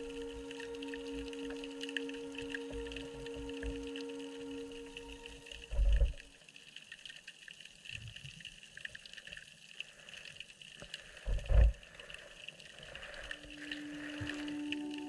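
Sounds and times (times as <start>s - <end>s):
underwater hiss with crackles: 0.0s - 15.0s.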